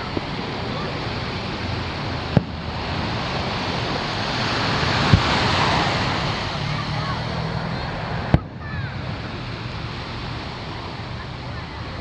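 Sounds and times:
surf washing on beach: 0.0 - 12.0
distant firework bangs: 2.2 - 6.0.

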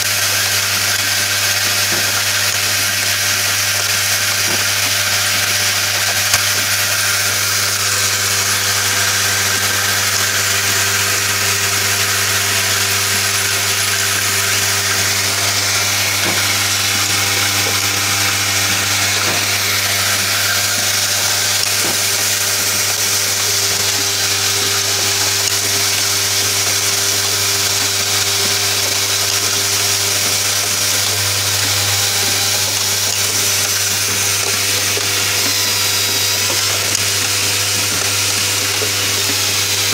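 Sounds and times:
machine humming: 0.0 - 39.9
machine hiss: 0.1 - 39.9.

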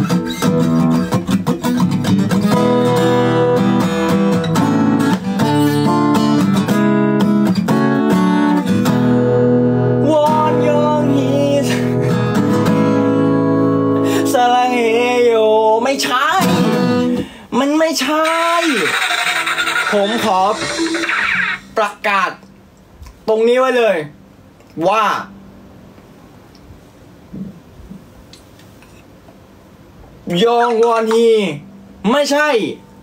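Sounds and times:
acoustic guitar strumming: 0.0 - 17.3, 18.1 - 22.0.

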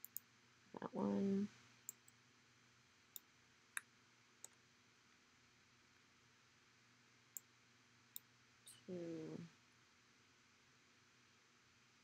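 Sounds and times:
faint room hiss: 0.0 - 12.0.

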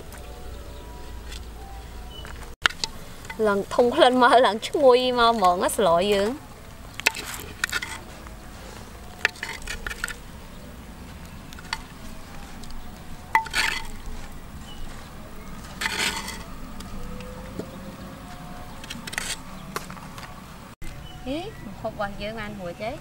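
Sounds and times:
metal spoon scraping clay pot: 7.0 - 10.6, 11.4 - 16.9, 18.6 - 19.6.

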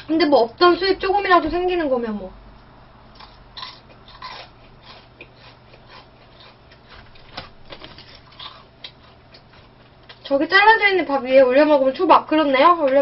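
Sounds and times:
chewing crunchy fried chicken: 3.1 - 10.4.

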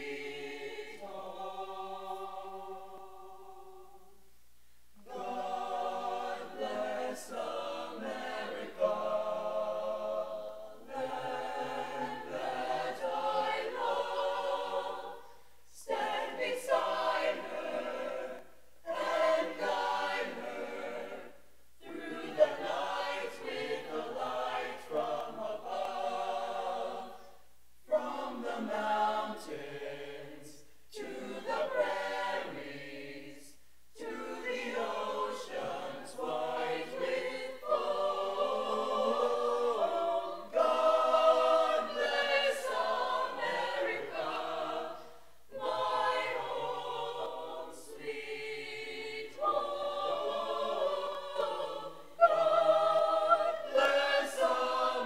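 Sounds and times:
choir singing unaccompanied: 0.0 - 4.2, 5.0 - 55.0.

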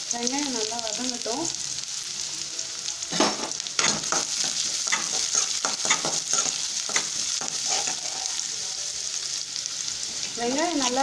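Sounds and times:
onions sizzling in hot oil: 0.0 - 11.0
metal spoon scraping a pan: 3.2 - 8.4.

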